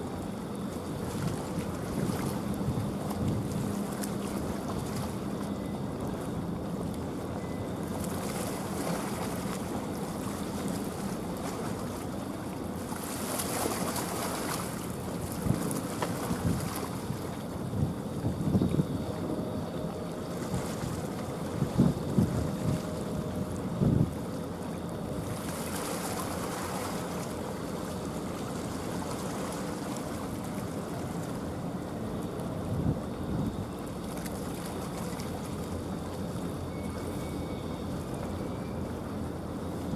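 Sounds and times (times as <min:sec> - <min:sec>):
waves washing: 0:00.0 - 0:39.9
wind rushing over microphone: 0:16.3 - 0:19.5, 0:21.6 - 0:22.8.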